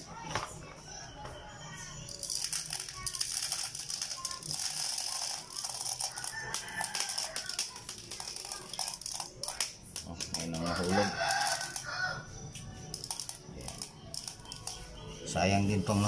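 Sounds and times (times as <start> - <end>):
plastic pellets rattling into magazine: 2.1 - 11.8, 12.9 - 14.8.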